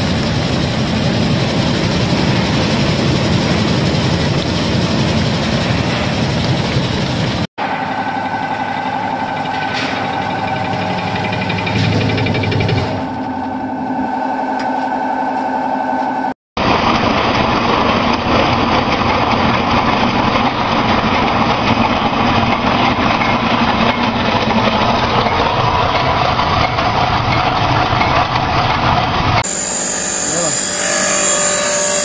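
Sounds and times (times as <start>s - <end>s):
slicing machine humming: 0.0s - 16.4s, 29.4s - 32.0s
milling machine grinding: 7.6s - 16.3s, 29.4s - 32.0s.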